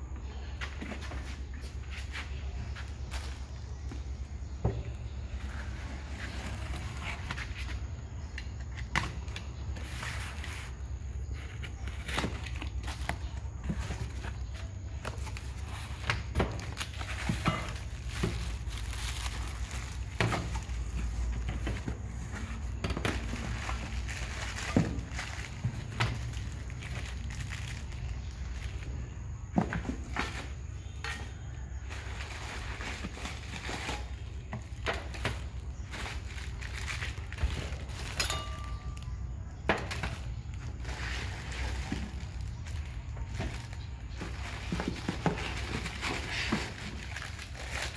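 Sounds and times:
plastic wrapping crackling: 9.2s - 29.0s, 31.9s - 39.2s, 40.1s - 47.9s
plastic packaging crinkling: 16.6s - 28.9s, 40.2s - 47.9s
metal kitchenware clinks and knocks: 38.0s - 39.0s.

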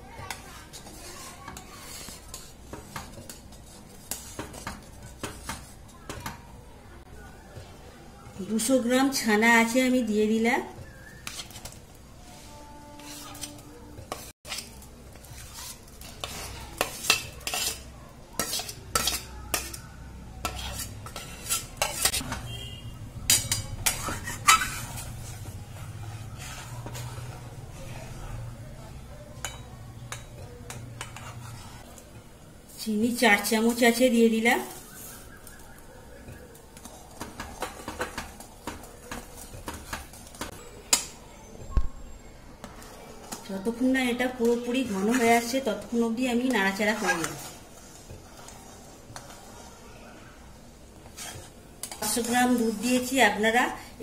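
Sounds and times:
metal spoon scraping steel pan: 0.3s - 5.8s, 11.2s - 28.2s, 29.4s - 31.9s, 44.3s - 49.7s, 51.0s - 53.5s.

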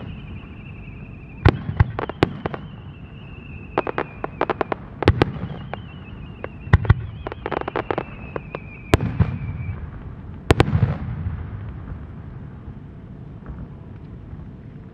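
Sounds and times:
high whistling tone: 0.0s - 9.8s
fireworks booms: 0.0s - 14.6s
fireworks crackling pops: 0.0s - 14.9s
rumbling echo: 0.0s - 14.9s.

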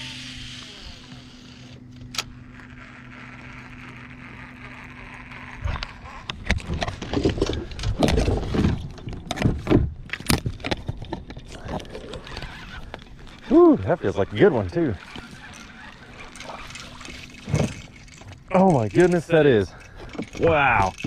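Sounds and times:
boat motor humming: 0.0s - 21.0s
knocks and rustling in boat: 5.5s - 13.5s, 15.0s - 21.0s.

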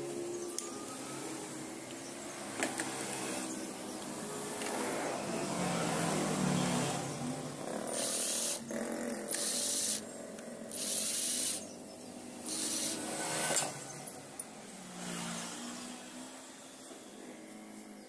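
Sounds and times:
cordless drill running in bursts: 8.0s - 8.7s, 9.3s - 10.0s, 10.7s - 11.6s, 12.4s - 13.6s.

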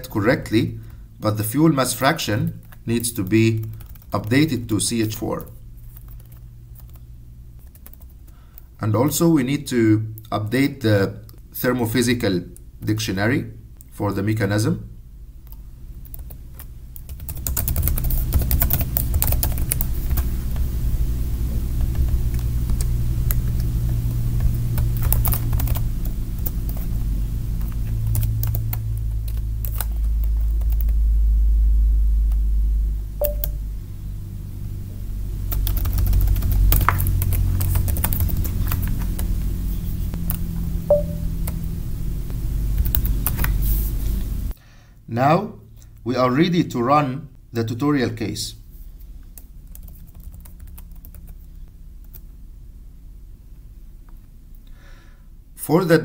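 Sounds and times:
low hum: 0.0s - 56.0s
keyboard typing: 2.5s - 4.5s, 5.4s - 7.0s, 7.6s - 8.3s, 15.4s - 20.3s, 21.8s - 31.0s, 33.2s - 33.6s, 35.5s - 39.4s, 40.2s - 41.6s, 42.8s - 43.5s, 49.4s - 52.2s.

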